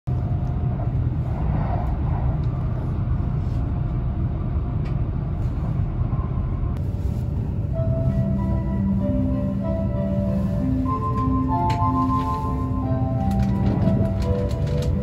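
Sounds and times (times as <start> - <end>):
train cabin rumble: 0.1 - 15.0
faint track clicks: 13.2 - 15.0.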